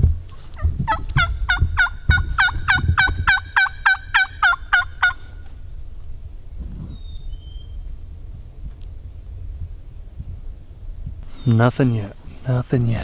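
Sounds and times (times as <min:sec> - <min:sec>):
turkey yelping: 0:00.6 - 0:05.4.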